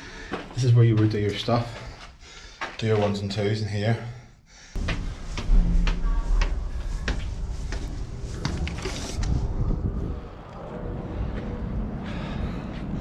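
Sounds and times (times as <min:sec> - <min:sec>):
footsteps: 0:00.0 - 0:03.5, 0:04.8 - 0:10.2
low steady rumble: 0:04.8 - 0:13.0.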